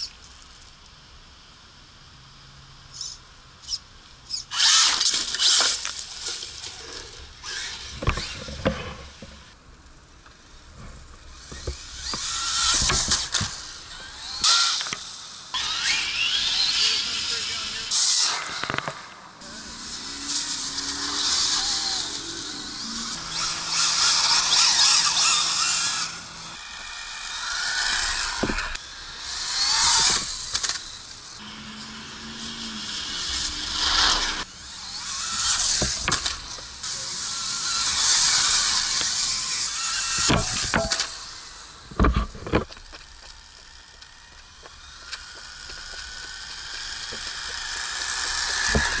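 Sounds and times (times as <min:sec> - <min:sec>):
electric motor whining: 0:04.3 - 0:09.6, 0:10.8 - 0:18.8, 0:19.4 - 0:49.0
sharp thumps: 0:10.7 - 0:15.0, 0:35.3 - 0:36.7, 0:40.1 - 0:41.2.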